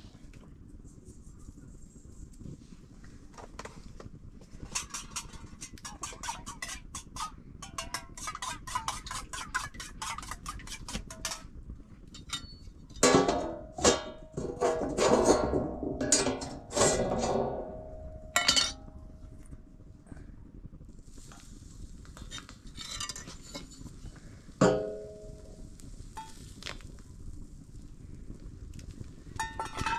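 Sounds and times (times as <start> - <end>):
ringing metal clanks: 12.2 - 19.0
light taps on metal dishes: 18.4 - 18.9.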